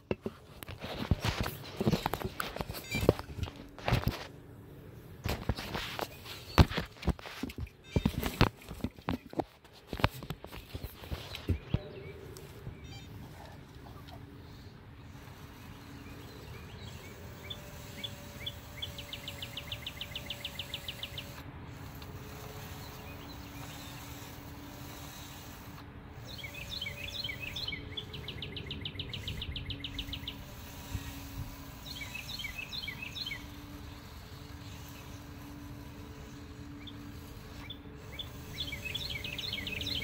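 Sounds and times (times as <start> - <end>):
steady low hum: 0.0 - 40.0
songbird chirping and trilling: 10.4 - 21.4, 26.1 - 40.0.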